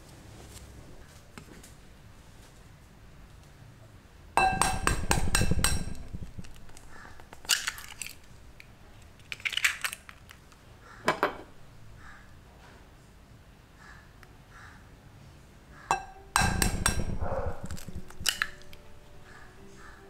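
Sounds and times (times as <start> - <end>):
egg tapping on glass bowl: 4.4 - 8.0, 15.9 - 19.5
eggshell crackling: 4.4 - 10.7, 15.9 - 20.0.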